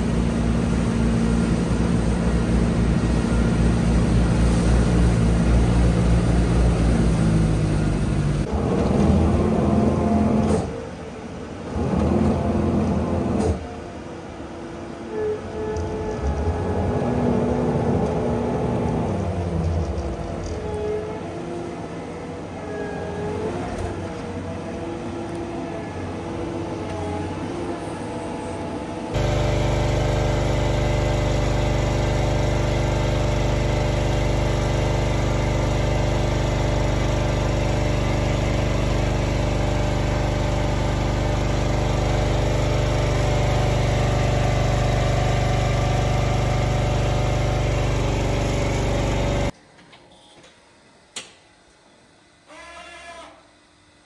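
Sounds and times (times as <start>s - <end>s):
machine hum with deep drone: 0.0s - 10.8s, 15.1s - 49.6s
feed mixer engine and cutter: 29.2s - 49.5s.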